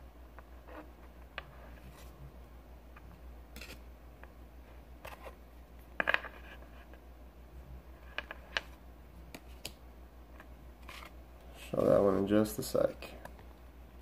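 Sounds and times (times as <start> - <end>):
faint low hum: 0.0 - 14.0
cards clicking and tapping: 8.1 - 9.8.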